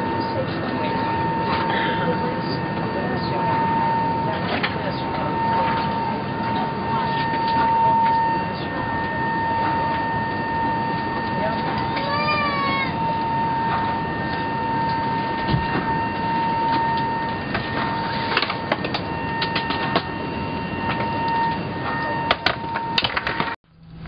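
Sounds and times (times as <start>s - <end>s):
airliner cabin noise: 0.0s - 24.0s
thin steady whine: 0.0s - 24.0s.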